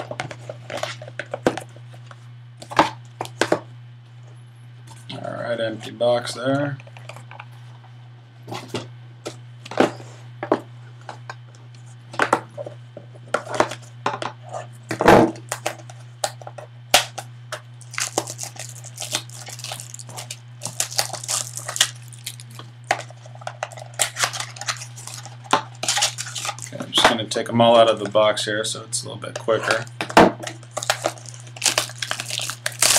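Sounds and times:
steady low hum: 0.0 - 32.9
crinkly wrapper rustling: 17.8 - 26.8, 30.7 - 32.9.

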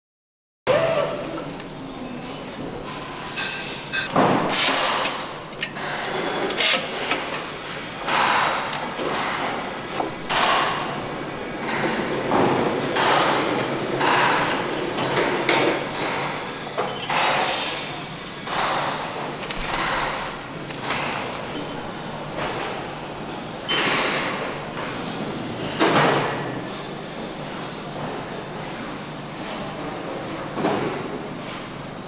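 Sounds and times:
tool noise bursts: 3.9 - 7.3.

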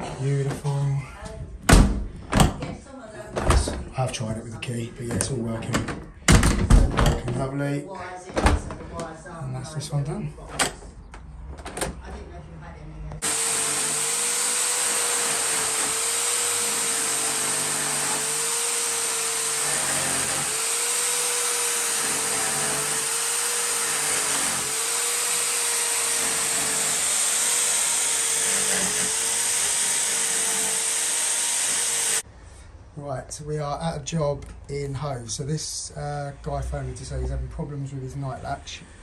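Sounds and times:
electric drill cutting wood: 13.2 - 32.2.

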